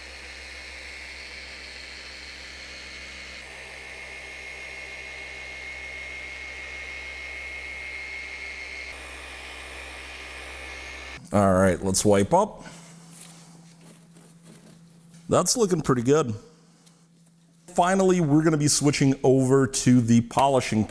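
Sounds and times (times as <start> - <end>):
polisher motor whine: 0.0 - 11.2.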